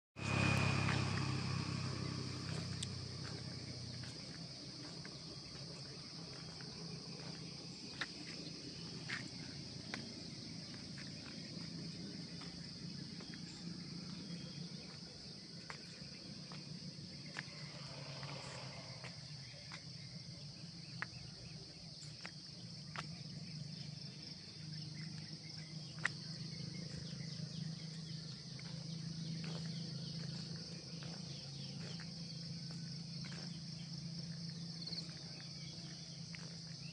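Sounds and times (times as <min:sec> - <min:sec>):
low hum: 0:00.2 - 0:21.9
insects droning: 0:00.2 - 0:36.9.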